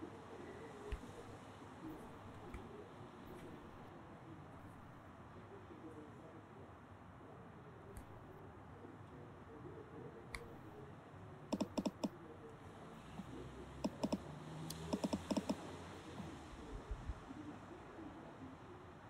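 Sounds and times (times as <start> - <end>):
phone keyboard tap clicks: 11.5 - 12.1, 13.2 - 15.6.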